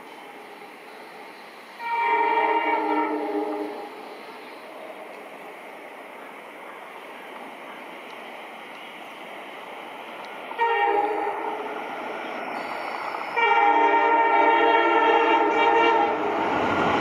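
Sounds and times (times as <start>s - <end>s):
multi-tone air horn: 1.8s - 3.9s, 10.6s - 11.6s, 13.4s - 16.3s.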